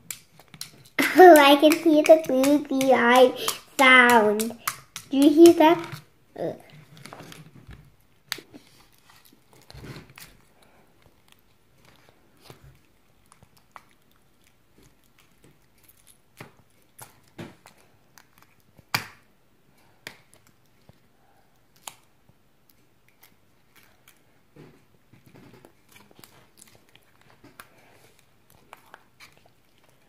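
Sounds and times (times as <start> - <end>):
slime stirred in plastic bowl: 0.0 - 6.1.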